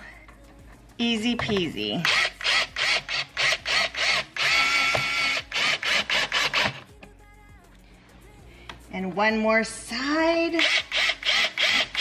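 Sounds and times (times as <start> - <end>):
cordless drill driving a screw: 2.0 - 6.8, 10.6 - 12.0.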